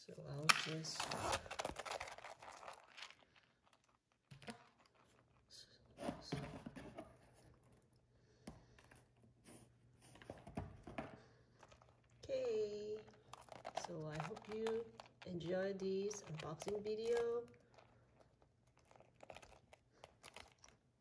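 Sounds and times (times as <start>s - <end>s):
rustling canvas pouch handled: 1.1s - 5.5s, 11.5s - 20.8s
soft crinkles and taps: 10.0s - 15.5s.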